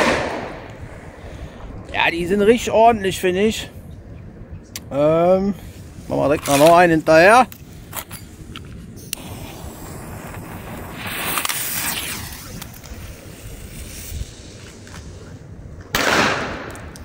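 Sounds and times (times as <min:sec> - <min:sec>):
firecracker bang: 0:00.0 - 0:03.2, 0:15.9 - 0:16.7
wind buffeting microphone: 0:00.0 - 0:17.0.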